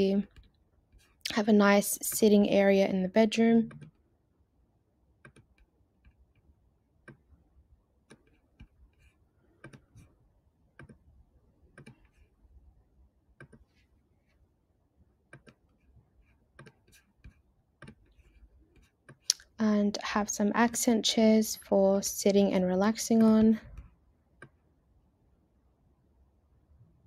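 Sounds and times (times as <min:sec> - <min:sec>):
computer mouse clicks: 0:03.6 - 0:04.0, 0:05.2 - 0:07.3, 0:08.1 - 0:10.1, 0:10.8 - 0:11.0, 0:11.7 - 0:12.2, 0:13.4 - 0:13.7, 0:15.3 - 0:15.8, 0:16.5 - 0:19.6.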